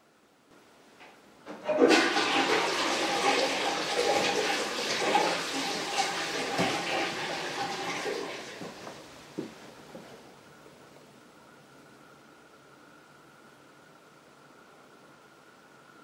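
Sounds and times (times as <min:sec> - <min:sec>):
faint steady whine: 0:00.0 - 0:01.7, 0:08.0 - 0:16.0
rushing water: 0:01.7 - 0:08.9.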